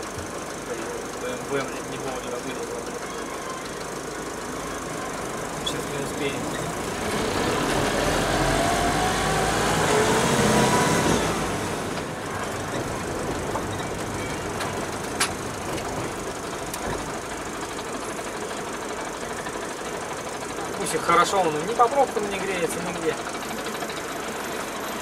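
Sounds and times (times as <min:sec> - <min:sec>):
road noise: 0:00.0 - 0:25.0
van diesel engine: 0:00.0 - 0:25.0.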